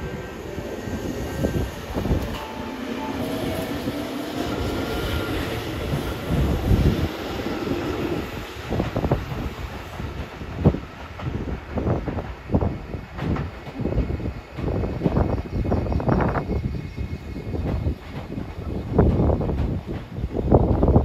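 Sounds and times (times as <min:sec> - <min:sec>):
train cars rumbling: 0:00.0 - 0:21.0.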